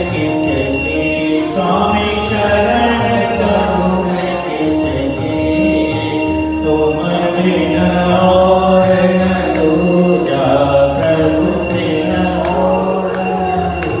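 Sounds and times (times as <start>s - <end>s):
congregation singing a hymn: 0.0s - 14.0s
temple bells ringing: 0.0s - 14.0s.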